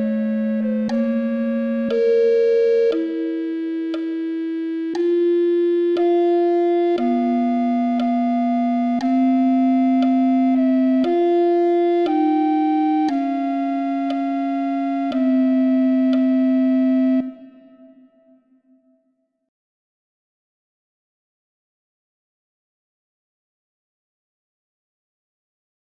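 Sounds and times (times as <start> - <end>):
synthesized baroque music: 0.0 - 18.5.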